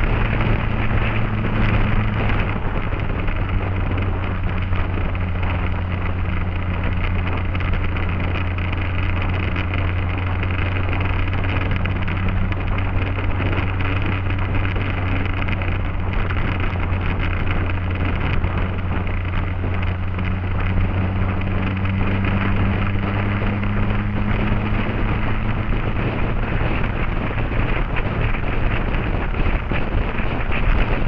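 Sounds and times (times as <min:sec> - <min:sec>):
motorcycle engine running: 0:00.0 - 0:31.0
wind rushing over microphone: 0:00.0 - 0:31.0.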